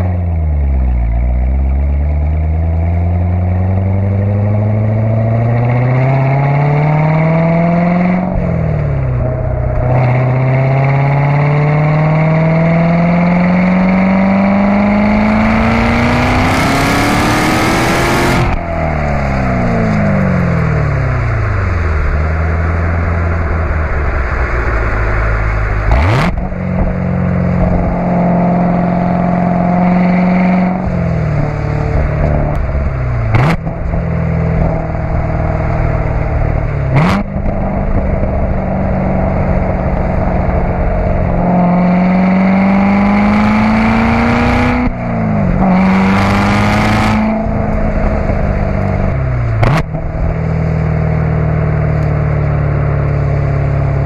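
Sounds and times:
car engine exhaust revving: 0:00.0 - 0:54.0
engine rev blips on downshifts: 0:02.4 - 0:23.4, 0:25.3 - 0:54.0.

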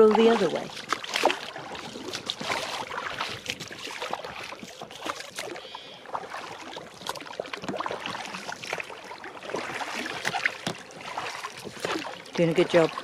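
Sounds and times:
oars splashing water: 0:00.0 - 0:13.0
small sharp splashes and knocks: 0:00.0 - 0:13.0
water lapping at hull: 0:00.0 - 0:13.0.

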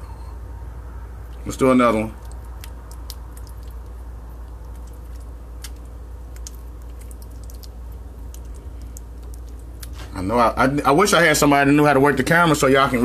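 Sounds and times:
steady low hum: 0:00.0 - 0:13.0
small clicks and squelches: 0:02.2 - 0:10.1.

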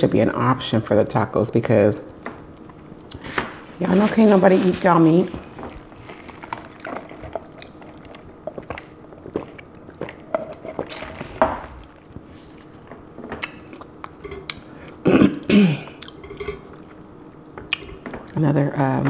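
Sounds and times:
chewing: 0:05.3 - 0:15.0, 0:15.9 - 0:18.4.

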